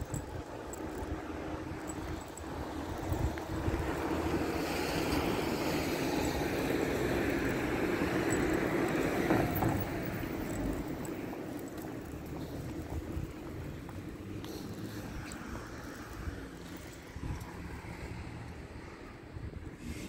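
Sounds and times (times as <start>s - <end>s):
vehicle passing by: 2.2s - 11.3s, 13.8s - 20.0s.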